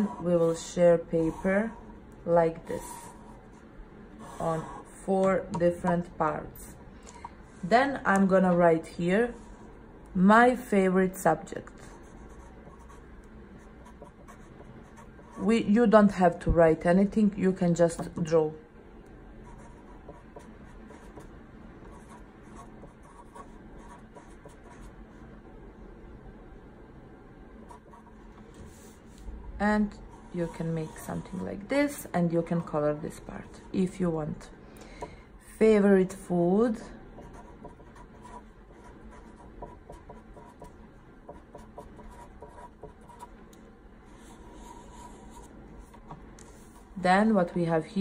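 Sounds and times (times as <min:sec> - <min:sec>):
marker writing on paper: 0:37.2 - 0:40.7, 0:41.3 - 0:43.3, 0:44.2 - 0:46.9.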